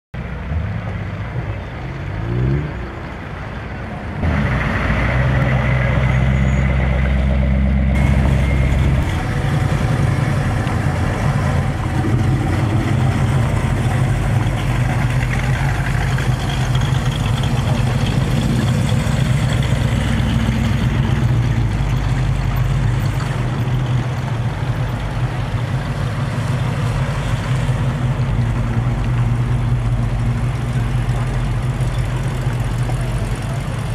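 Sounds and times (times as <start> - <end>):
car engines driving past: 0.2 - 33.9
engine revving: 4.2 - 23.6.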